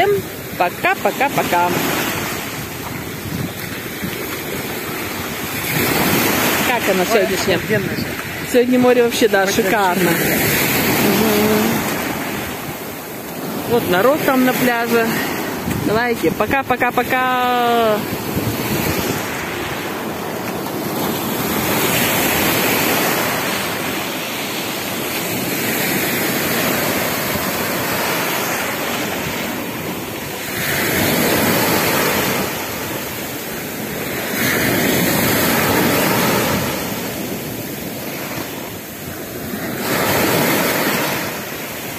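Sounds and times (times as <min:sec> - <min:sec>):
wind on microphone: 0:00.0 - 0:24.2
surf on pebble beach: 0:00.0 - 0:41.9.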